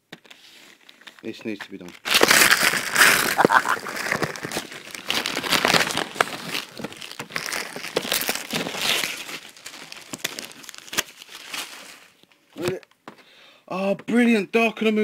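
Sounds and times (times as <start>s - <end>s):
wrapping paper tearing and crumpling: 0.3s - 12.2s.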